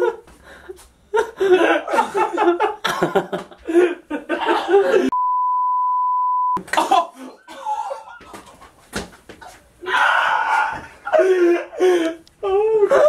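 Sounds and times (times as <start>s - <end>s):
men laughing: 0.0s - 5.2s, 6.6s - 8.9s, 10.5s - 12.2s
censor bleep tone: 5.2s - 6.6s.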